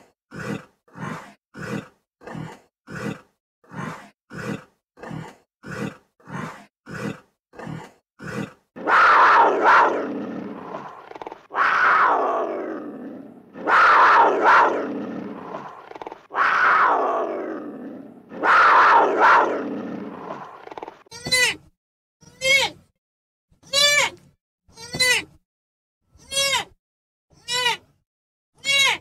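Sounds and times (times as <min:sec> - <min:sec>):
animal grunting: 0:00.0 - 0:21.1
animal long falling calls: 0:08.8 - 0:21.0.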